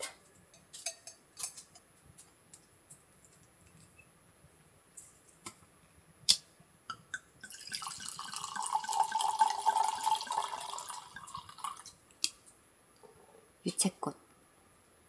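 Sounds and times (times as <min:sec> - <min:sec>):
wine pouring into a glass: 0:07.4 - 0:12.0.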